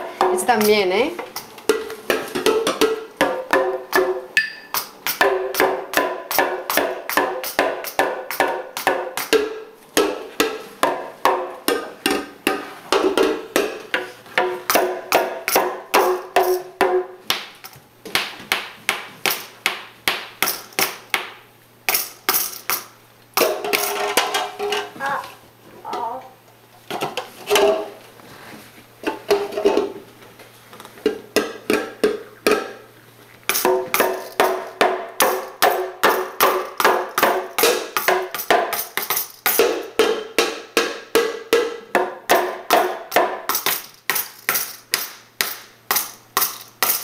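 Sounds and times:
mallets knocking toy drums: 1.4s - 17.1s, 33.5s - 47.0s.

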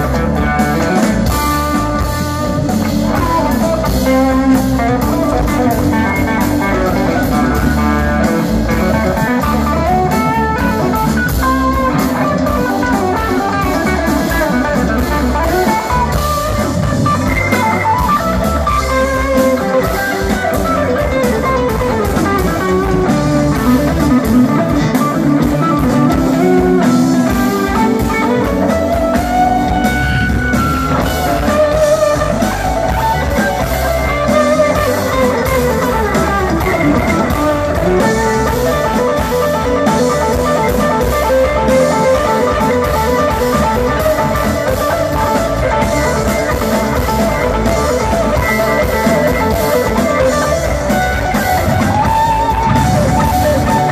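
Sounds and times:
electric guitar bending notes: 0.0s - 53.9s
live rock band playing: 0.0s - 53.9s.

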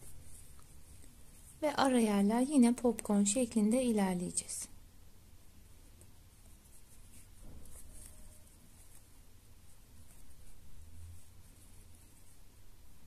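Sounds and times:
soft handling of crocheted fabric: 0.0s - 13.0s
crochet hook scratching yarn: 5.8s - 12.6s.

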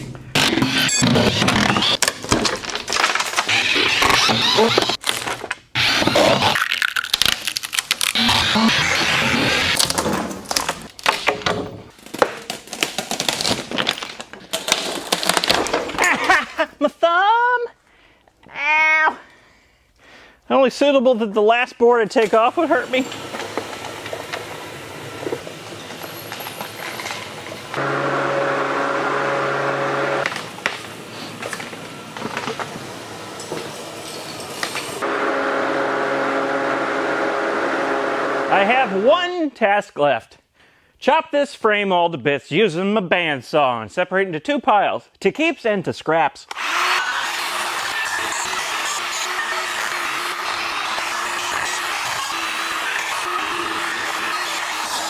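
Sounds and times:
wooden boards ripped off: 0.4s - 16.2s, 46.5s - 55.0s
electric motor humming: 27.7s - 31.1s, 35.0s - 39.1s, 46.6s - 55.0s.

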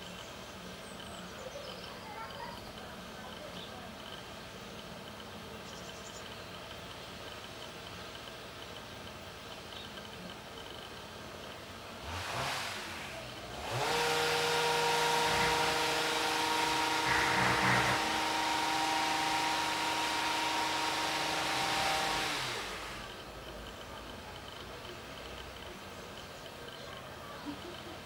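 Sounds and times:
motor spinning: 9.9s - 28.0s.

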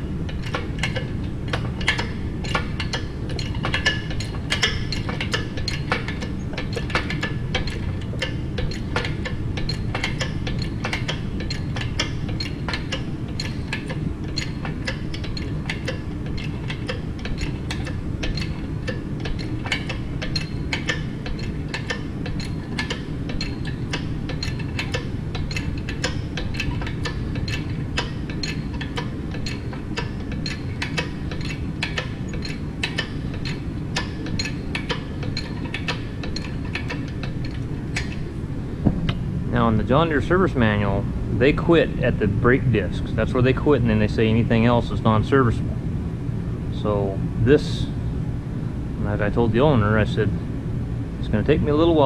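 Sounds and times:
low steady hum: 0.0s - 52.0s
chain hoist clicking: 0.3s - 38.3s.

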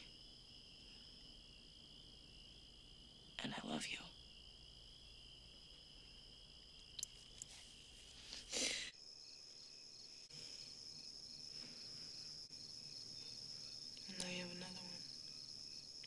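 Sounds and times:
crickets trilling: 0.0s - 16.0s
pulsing insect chirps: 8.6s - 16.0s.

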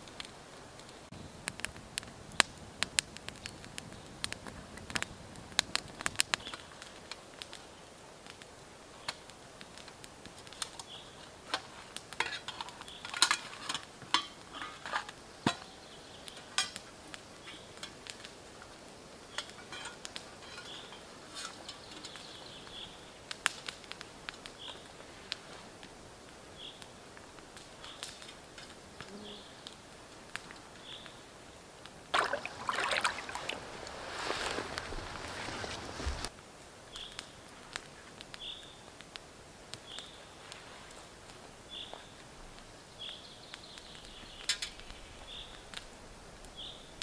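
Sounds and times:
twig fire crackling and popping: 0.0s - 47.0s
metal cookware clinking: 19.5s - 21.0s.

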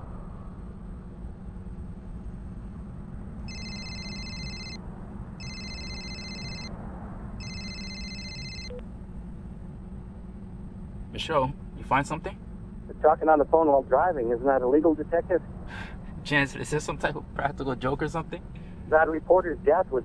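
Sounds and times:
cellphone ringing: 3.5s - 4.8s, 5.4s - 6.7s, 7.4s - 8.8s.

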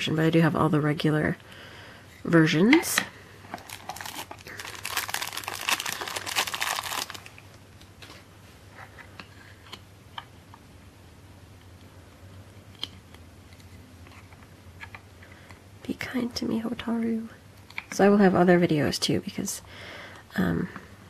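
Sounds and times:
plastic wrapping crinkling: 3.5s - 8.2s.

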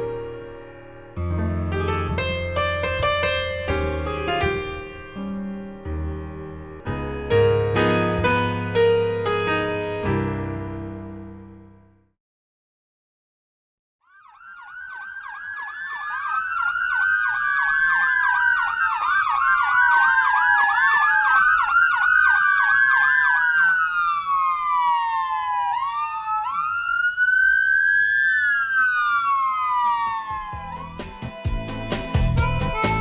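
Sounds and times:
quick yelping siren chirps: 14.0s - 31.3s
siren wails rising and falling: 14.0s - 32.1s.

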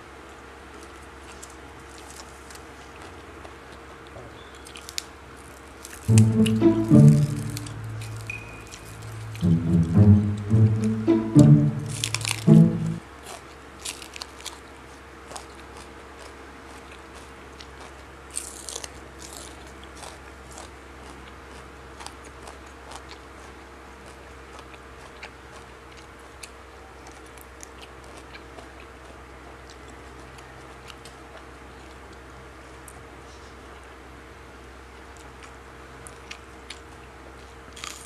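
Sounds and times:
wet chewing clicks: 0.7s - 6.2s, 13.3s - 33.0s, 35.0s - 38.0s
crunching raw vegetables: 0.7s - 6.4s, 12.0s - 33.0s, 35.1s - 38.0s.

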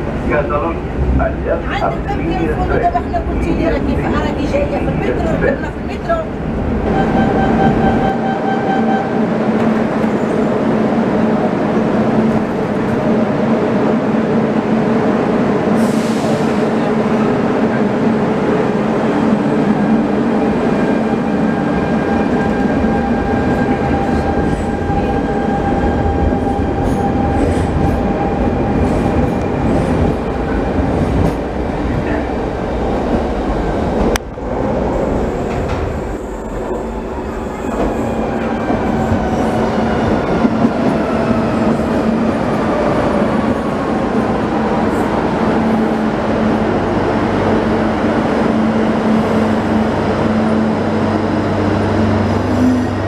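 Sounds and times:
train approaching in tunnel: 0.0s - 53.0s
train air hiss: 15.8s - 16.7s.

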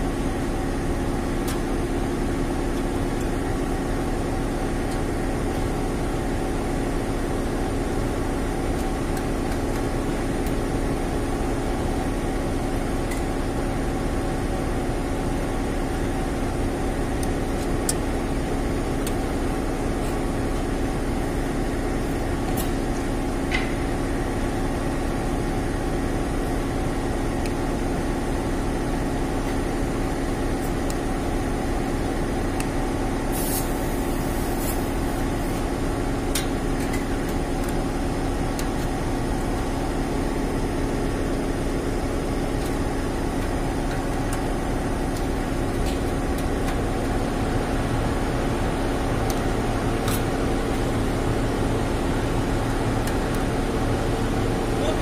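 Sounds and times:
machine humming: 0.0s - 55.0s.

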